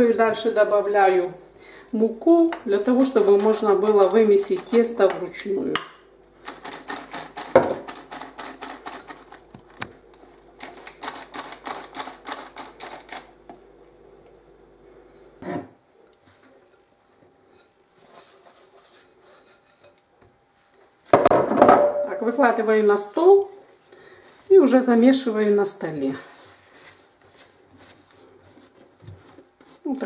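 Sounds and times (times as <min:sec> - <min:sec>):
flour sifter clicking rapidly: 0:03.0 - 0:05.0.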